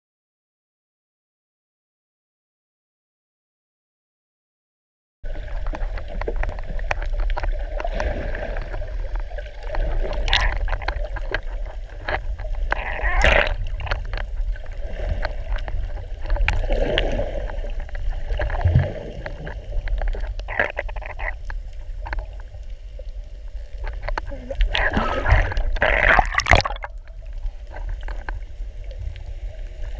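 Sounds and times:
underwater rumble of moving water: 5.2 - 29.9
water gurgling: 5.3 - 29.9
sharp underwater clicks: 5.5 - 28.5.

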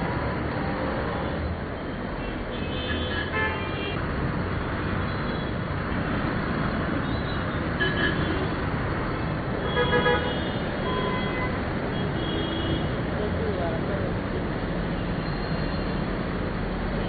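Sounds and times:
slow road traffic: 0.0 - 17.0
vehicle horns honking: 2.2 - 4.0, 7.2 - 8.5, 9.6 - 12.9
motorcycle and car engines: 4.0 - 7.8.

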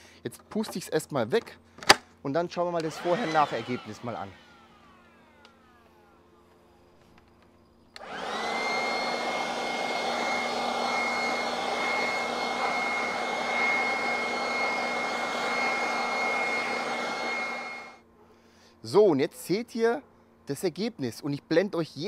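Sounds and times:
leaf blower whining: 2.7 - 7.3, 8.0 - 18.0.

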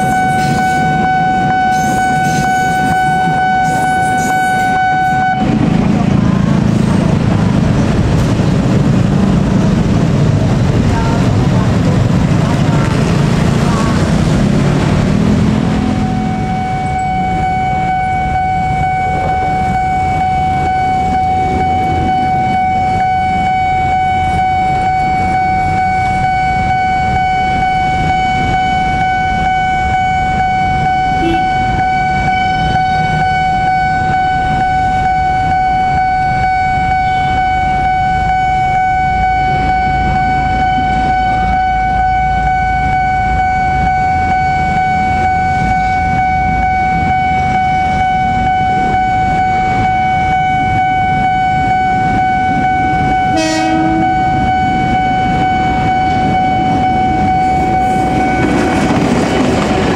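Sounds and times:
train rumbling: 0.0 - 59.9
steady high tone: 10.9 - 59.9.

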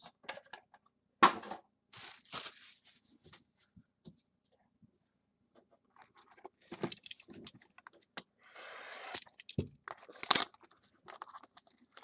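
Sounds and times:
plastic wrap crinkling: 2.0 - 3.0.

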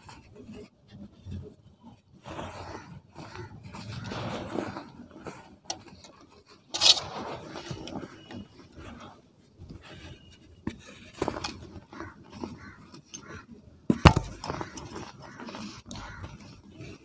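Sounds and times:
sharp scrape: 2.2 - 6.0, 6.6 - 9.2.

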